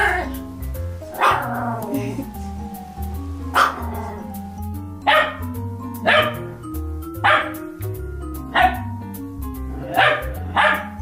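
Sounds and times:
background music: 0:00.0 - 0:11.0
small dog barking: 0:01.2 - 0:01.6, 0:03.5 - 0:04.2, 0:05.1 - 0:05.4, 0:06.0 - 0:06.4, 0:07.2 - 0:07.6, 0:08.6 - 0:08.8, 0:09.9 - 0:11.0.

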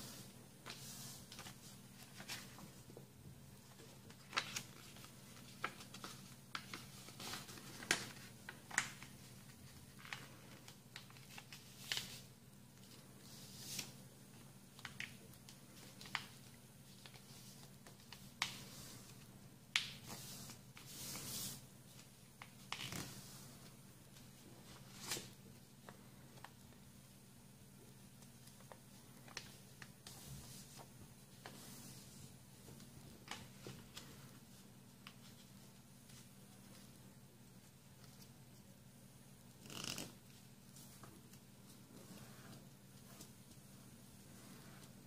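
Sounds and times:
paper being folded and creased: 0:00.1 - 0:02.7, 0:03.7 - 0:14.0, 0:14.8 - 0:23.8.

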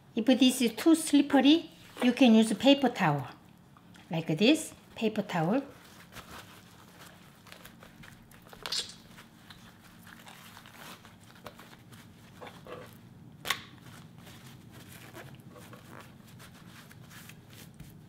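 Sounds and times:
faint steady hum: 0:00.0 - 0:18.0
paper towel crinkling: 0:05.4 - 0:13.1, 0:13.7 - 0:18.0
sharp paper crackles: 0:05.8 - 0:12.5.

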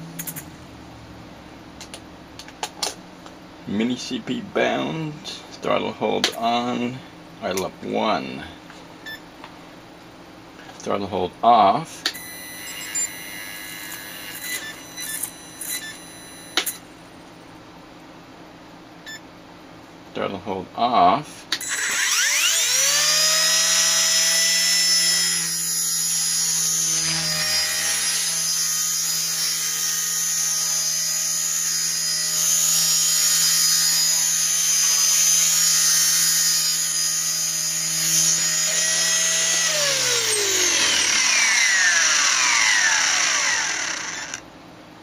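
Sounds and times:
rc helicopter motor and rotor whine: 0:21.6 - 0:44.4.

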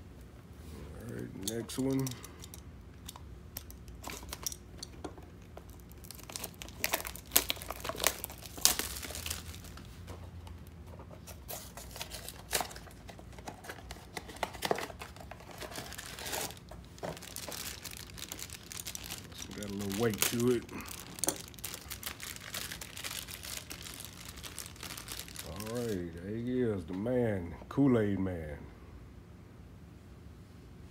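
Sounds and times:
cardboard and wrapper crinkling tearing: 0:05.4 - 0:26.2.

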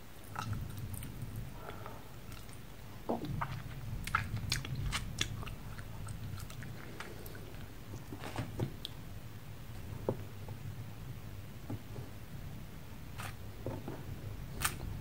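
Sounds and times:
person chewing hard candy: 0:03.2 - 0:07.7.

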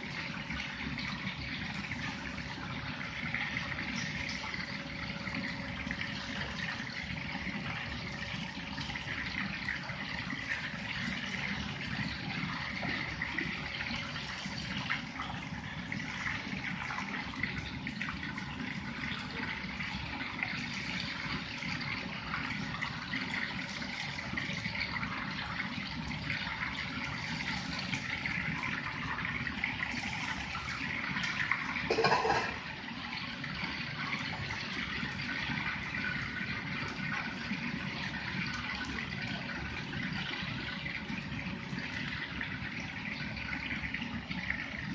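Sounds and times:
ribs deep-frying in oil: 0:00.0 - 0:44.9
tap running water into pot: 0:26.9 - 0:33.0.

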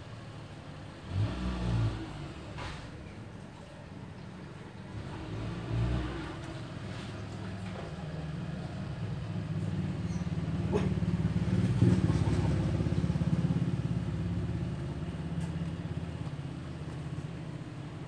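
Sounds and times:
vehicle engine passing by: 0:00.9 - 0:03.6, 0:04.5 - 0:18.0.

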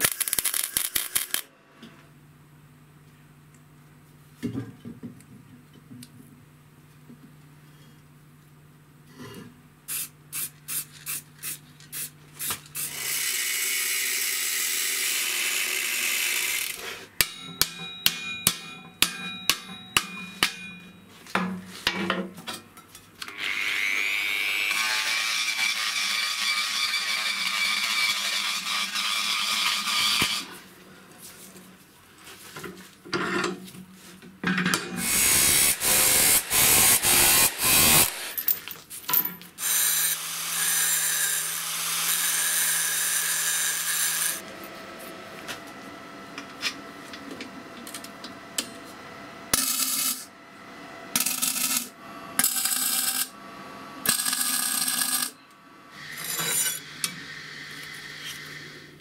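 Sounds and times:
ringing metal strikes: 0:17.2 - 0:21.1
power tool whining: 0:35.0 - 0:38.5.

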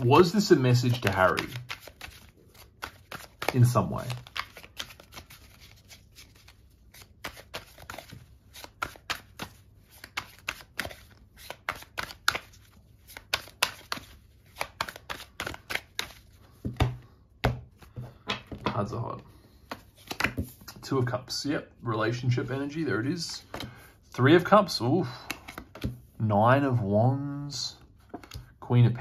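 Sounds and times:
cards being shuffled: 0:00.0 - 0:18.8, 0:19.6 - 0:20.8, 0:23.4 - 0:24.2, 0:25.3 - 0:26.1, 0:28.0 - 0:28.5.

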